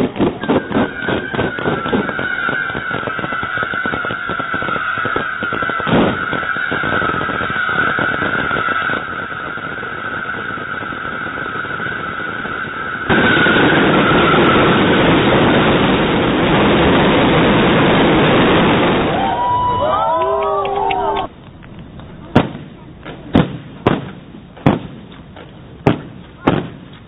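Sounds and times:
heavy bang: 0.0s - 19.9s
fireworks crackling: 0.0s - 27.0s.

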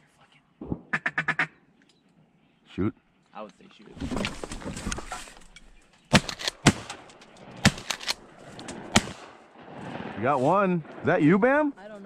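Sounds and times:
shotgun blasts: 6.1s - 11.1s.

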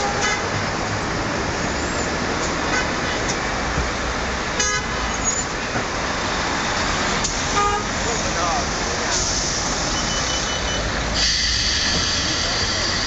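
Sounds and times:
city street traffic: 0.0s - 13.0s
vehicle horn toot: 4.6s - 4.9s, 7.6s - 7.9s.

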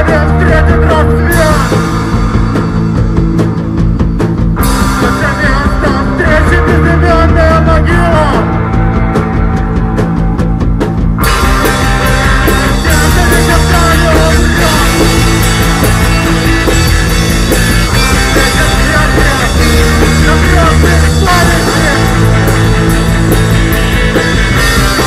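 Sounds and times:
rock band playing: 0.0s - 25.0s.

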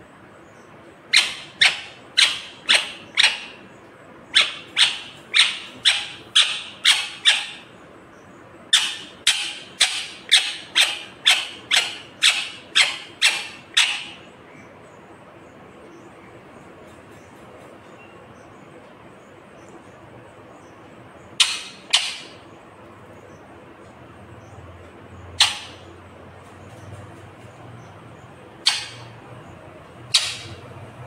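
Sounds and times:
parakeet screeching: 1.1s - 3.6s, 4.3s - 7.7s, 8.7s - 14.2s, 21.4s - 22.4s, 25.4s - 25.9s, 28.6s - 29.2s, 30.1s - 30.6s.

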